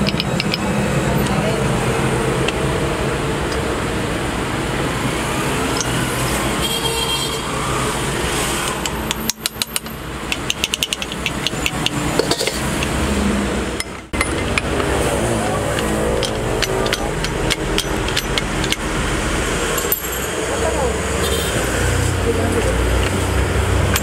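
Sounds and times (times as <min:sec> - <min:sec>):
metal parts clicking: 0:00.0 - 0:01.3, 0:08.7 - 0:13.0, 0:13.8 - 0:18.9, 0:19.7 - 0:20.3
engine-like hum: 0:07.4 - 0:24.0.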